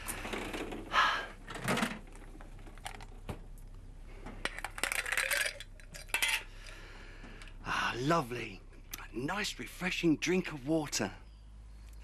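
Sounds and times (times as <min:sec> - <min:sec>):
small hard objects clinking: 0:04.4 - 0:06.7.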